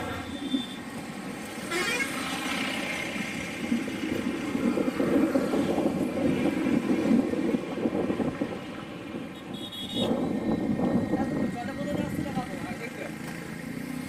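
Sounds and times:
road traffic passing: 0.0 - 14.0
vehicle engine: 0.0 - 14.0
vehicle horn: 9.3 - 10.2.

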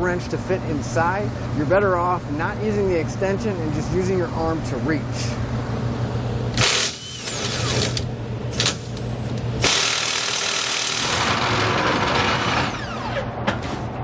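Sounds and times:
impact wrench hammering: 9.6 - 12.6.

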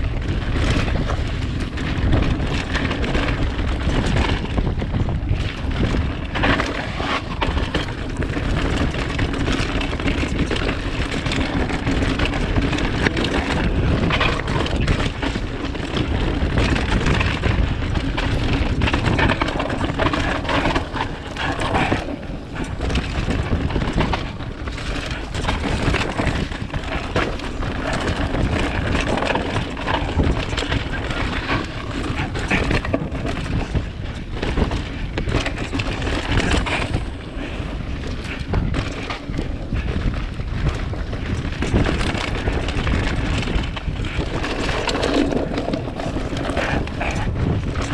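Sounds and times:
bike rattling and knocking: 0.0 - 47.9
tyres on rough ground: 0.0 - 47.9
wind buffeting microphone: 0.0 - 47.9.

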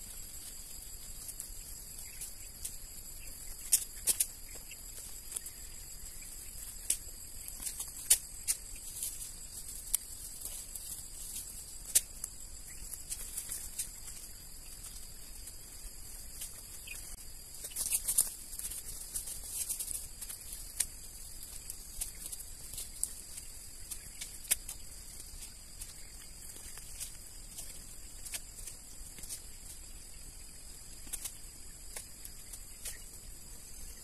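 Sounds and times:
stems snapping and crackling: 3.6 - 5.6, 6.6 - 15.6, 16.3 - 29.4, 31.0 - 33.1.

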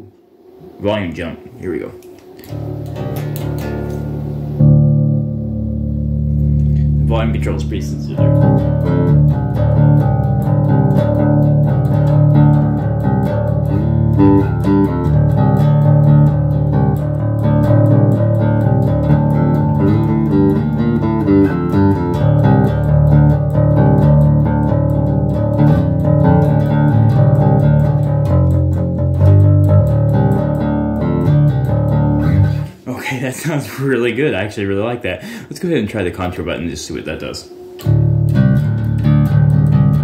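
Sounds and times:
electric bass guitar riffing: 1.5 - 32.9, 37.0 - 40.0.

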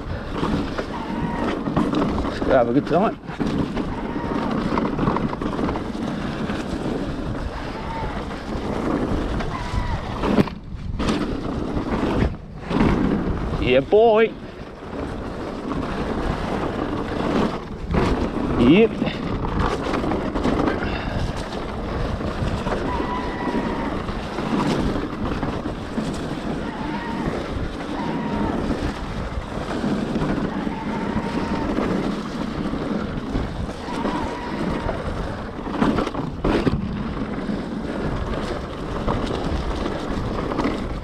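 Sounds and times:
tyres rumbling on dirt: 0.0 - 41.0
wind on microphone: 0.0 - 41.0.

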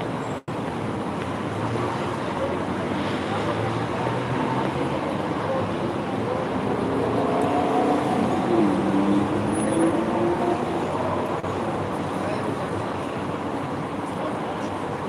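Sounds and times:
city traffic noise: 0.0 - 15.0.

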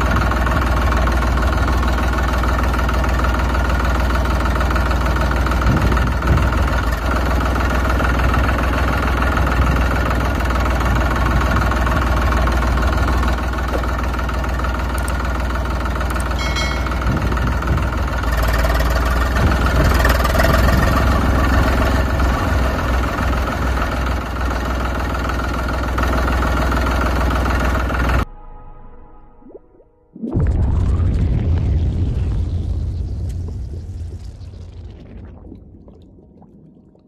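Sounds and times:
tractor engine rumbling: 0.0 - 28.4.

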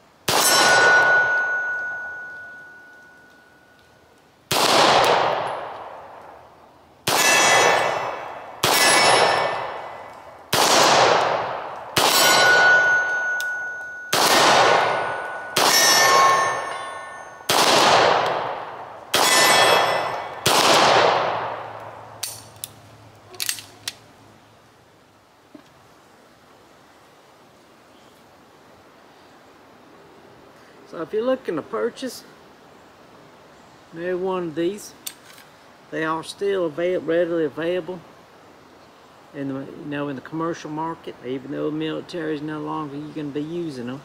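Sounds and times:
pistol shots: 0.3 - 1.7, 4.5 - 6.0, 7.0 - 22.4
steel target ringing: 0.3 - 3.8, 7.1 - 10.1, 12.0 - 20.5.

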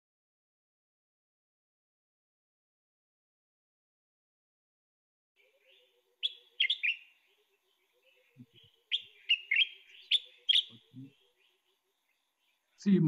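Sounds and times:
bird singing sharp notes: 5.4 - 12.9.

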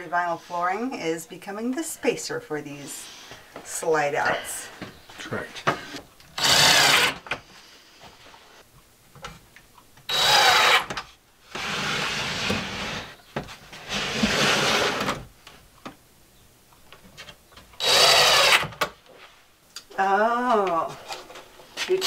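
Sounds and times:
impact driver driving screws: 6.4 - 7.2, 10.1 - 11.0, 17.8 - 18.9.

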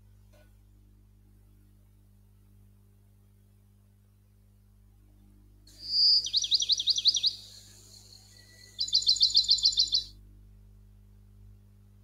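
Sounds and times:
bird singing: 5.7 - 10.1.

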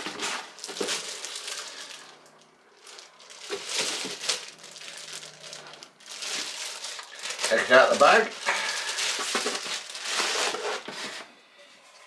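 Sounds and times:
plastic bag crinkling: 0.0 - 11.3.

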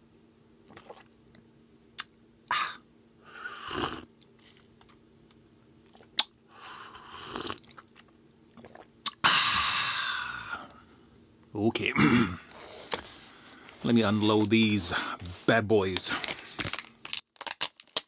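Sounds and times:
slurping sips of coffee: 3.4 - 4.1, 6.8 - 7.8.

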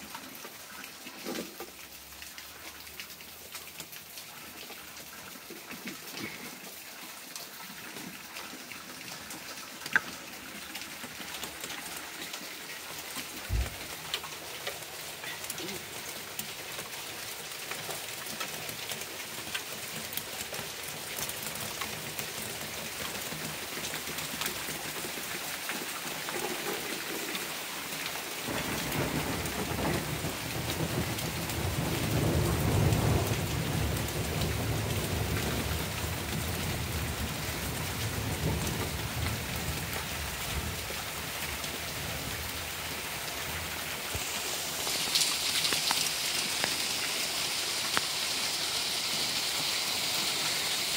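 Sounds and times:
steady rain falling: 0.0 - 50.9
rolling thunder: 28.5 - 37.2.

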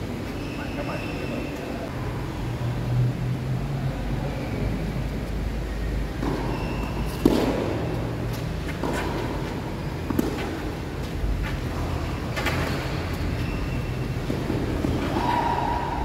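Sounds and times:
low traffic rumble: 0.0 - 16.0
tennis ball struck by racket: 6.2 - 7.9, 10.0 - 10.6.

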